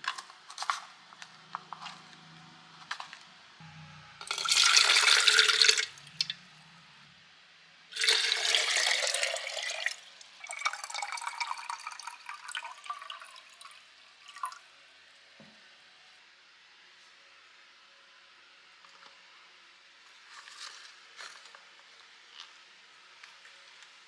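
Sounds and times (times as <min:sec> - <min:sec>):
water pouring into a bottle: 0:04.3 - 0:06.4, 0:08.0 - 0:14.6.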